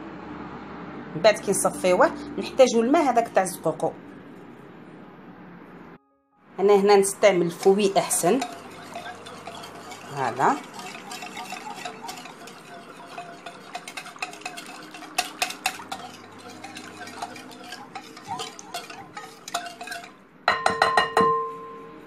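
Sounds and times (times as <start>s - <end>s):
whisk scraping ceramic bowl: 6.9s - 20.2s
whisk knocked against bowl: 7.6s - 21.5s.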